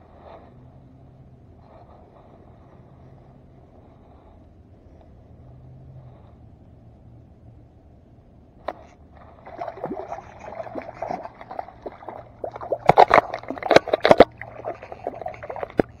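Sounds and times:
fish thrashing and splashing: 0:09.2 - 0:16.0.

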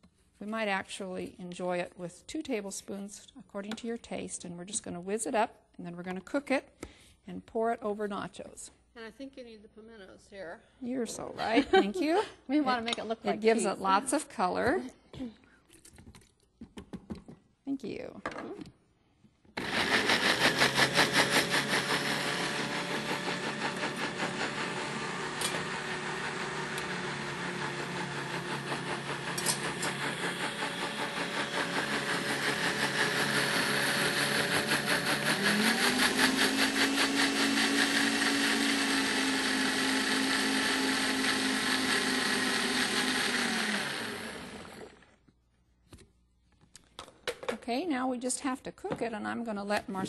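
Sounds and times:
blender running: 0:19.6 - 0:45.2.

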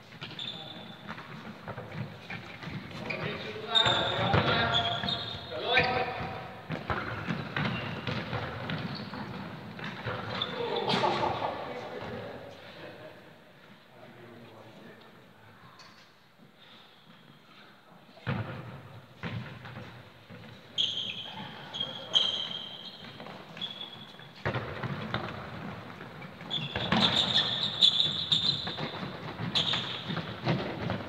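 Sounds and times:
trainers squeaking on court: 0:00.2 - 0:11.4, 0:19.8 - 0:31.0.

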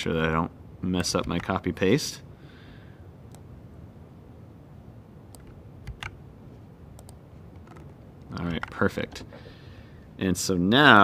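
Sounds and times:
low room hum: 0:00.0 - 0:11.0
laptop keyboard clicks: 0:05.4 - 0:06.2, 0:07.0 - 0:09.2.

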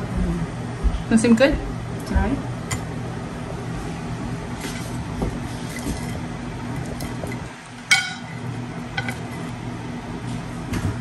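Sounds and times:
steady low hum: 0:00.0 - 0:11.0
utensil clinking on ceramic plate: 0:07.9 - 0:08.4.

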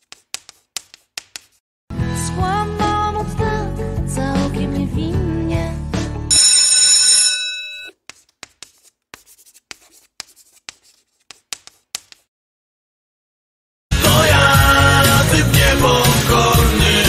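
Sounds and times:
chalk tapping on a blackboard: 0:00.0 - 0:01.6, 0:07.9 - 0:12.3.

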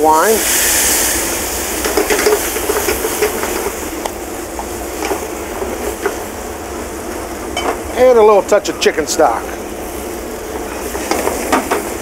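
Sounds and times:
wine sizzling in hot pan: 0:00.0 - 0:12.0.

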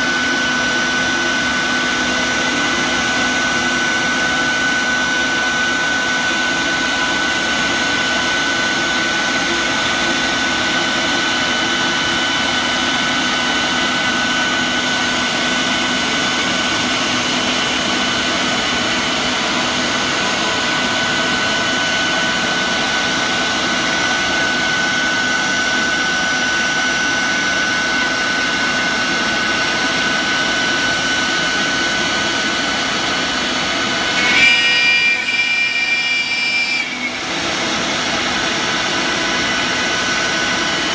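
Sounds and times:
router spindle high whine: 0:00.0 - 0:40.9
rushing cutting and dust extraction: 0:36.9 - 0:40.9.

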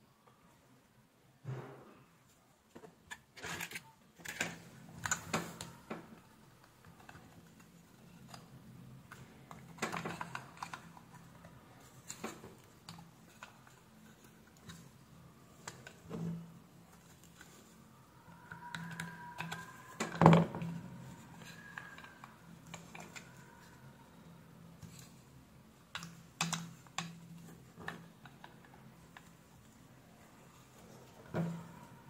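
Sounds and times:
small plastic parts clicking: 0:03.1 - 0:16.2, 0:16.9 - 0:23.7, 0:25.8 - 0:29.8.

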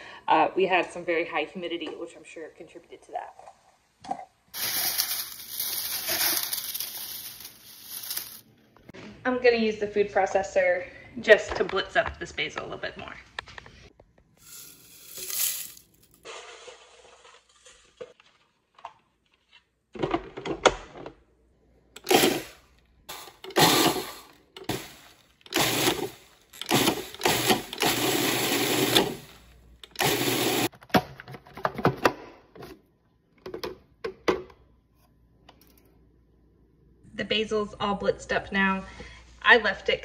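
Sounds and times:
faint handling sounds: 0:04.6 - 0:08.9
food processor chopping in bursts: 0:22.0 - 0:22.5, 0:23.4 - 0:29.3, 0:29.9 - 0:30.7.

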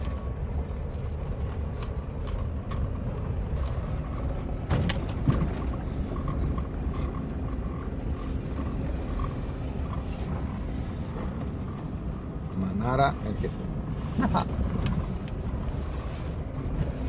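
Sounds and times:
car engine rumble from cabin: 0:00.0 - 0:17.0
rattles and knocks: 0:01.8 - 0:07.8.

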